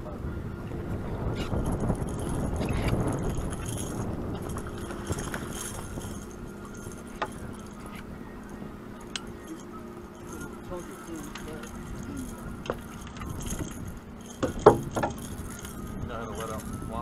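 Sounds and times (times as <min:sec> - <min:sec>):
low rumbling noise: 0:00.0 - 0:17.0.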